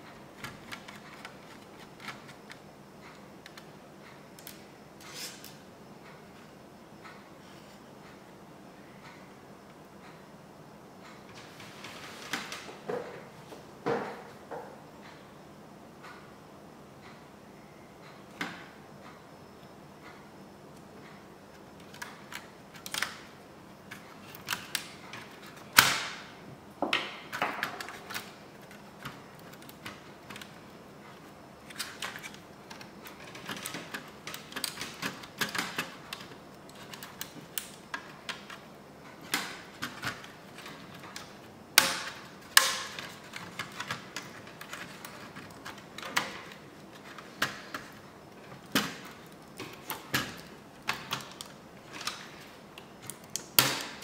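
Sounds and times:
laptop parts clicking and knocking: 0.0 - 4.6, 21.5 - 54.0.

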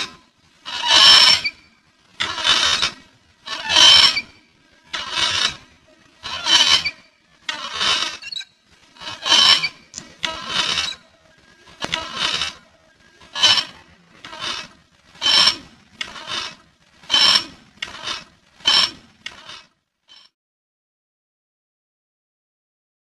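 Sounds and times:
metal swing squeaking: 0.0 - 20.3.

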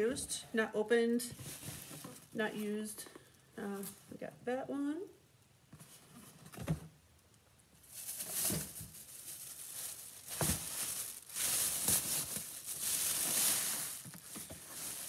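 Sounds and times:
plastic bag rustling: 1.3 - 2.8, 7.8 - 15.0.

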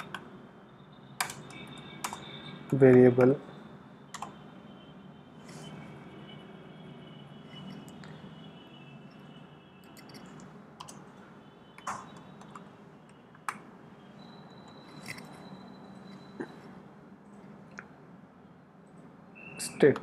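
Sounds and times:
computer keyboard keystrokes: 0.0 - 0.2, 1.2 - 3.4, 4.1 - 4.4, 9.9 - 11.0, 11.8 - 12.7.

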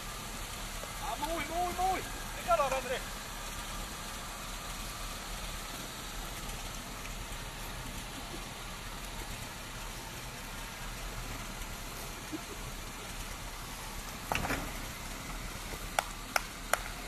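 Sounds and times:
car engine running at low revs: 0.0 - 17.0
thump: 14.3 - 14.9.

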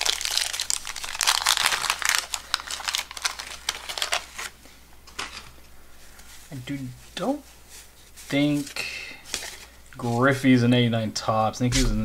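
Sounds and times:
wax wrapper tearing and crinkling: 0.0 - 4.6.

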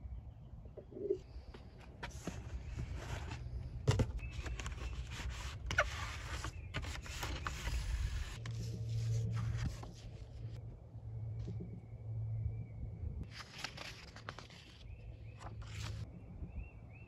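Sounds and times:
paper and cardboard rustling: 1.6 - 10.6, 13.2 - 16.0
low steady hum: 6.8 - 16.5.

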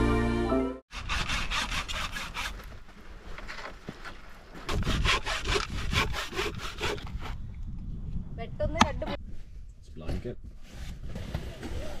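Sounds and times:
hand saw cutting dry wood: 0.9 - 2.7, 4.7 - 7.3.

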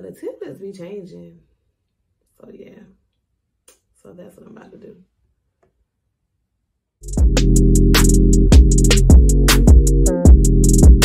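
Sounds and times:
low kick drum beat: 7.0 - 11.0
sustained bass notes: 7.0 - 11.0.

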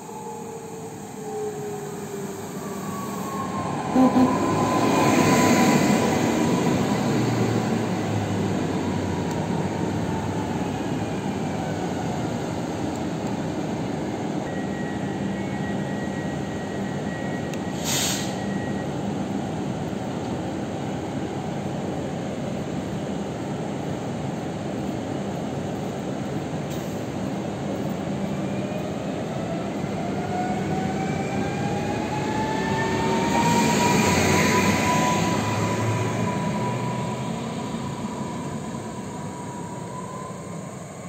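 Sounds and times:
air hiss: 17.8 - 18.4.

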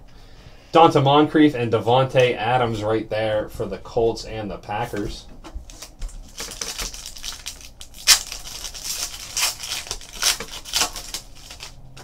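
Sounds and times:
foil wrapper tearing and crinkling: 5.7 - 12.0.

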